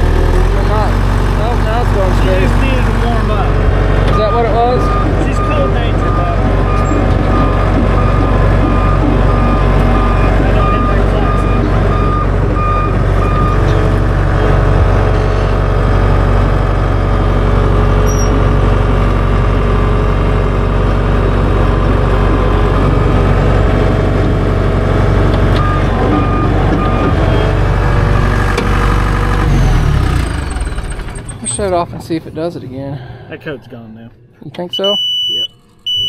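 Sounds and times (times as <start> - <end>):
diesel engine running: 0.0 - 33.6
reverse alarm beeping: 4.1 - 13.8, 25.6 - 27.6, 34.6 - 36.0.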